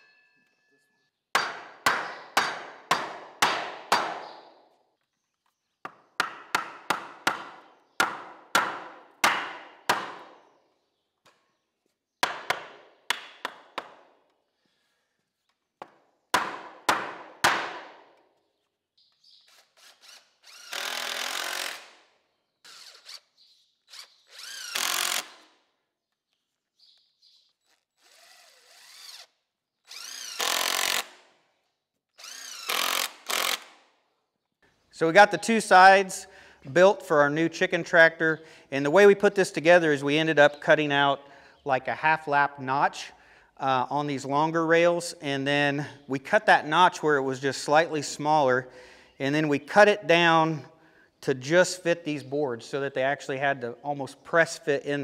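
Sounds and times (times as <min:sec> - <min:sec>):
hammer striking wood: 0:01.3 - 0:04.4, 0:05.8 - 0:10.4, 0:12.2 - 0:14.0, 0:15.8 - 0:18.1
cordless drill drilling: 0:19.2 - 0:22.0, 0:22.6 - 0:25.6, 0:27.4 - 0:31.2, 0:32.1 - 0:33.8.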